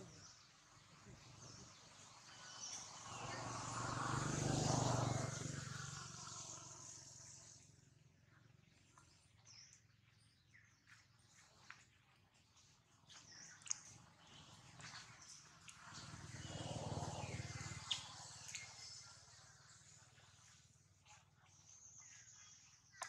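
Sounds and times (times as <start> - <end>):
motor vehicle passing by: 0.0 - 9.1, 13.8 - 21.7.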